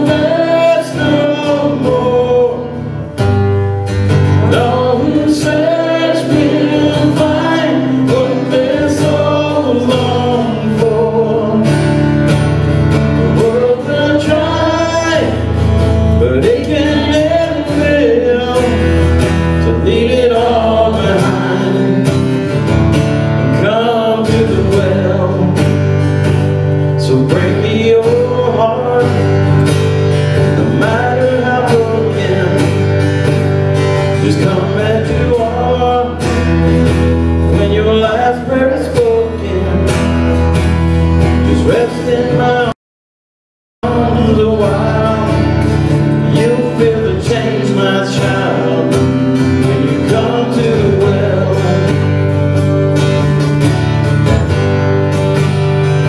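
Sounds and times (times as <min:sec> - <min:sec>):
people singing: 0:00.0 - 0:03.0, 0:04.3 - 0:12.2, 0:12.9 - 0:22.4, 0:30.5 - 0:33.0, 0:34.2 - 0:36.6, 0:37.5 - 0:40.2, 0:41.3 - 0:42.8, 0:43.8 - 0:52.2
acoustic guitar strumming: 0:00.0 - 0:42.8, 0:43.8 - 0:56.0.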